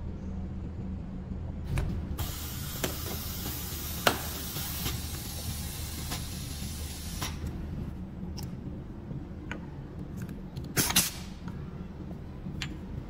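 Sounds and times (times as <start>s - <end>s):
low hum: 0.0s - 13.0s
hiss of air: 2.2s - 7.4s, 10.8s - 11.4s.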